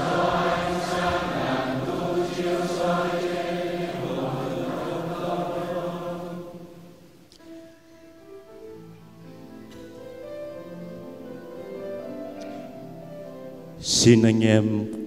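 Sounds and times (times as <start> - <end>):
group chanting in unison: 0.0 - 7.0
faint instrumental music: 6.8 - 15.0.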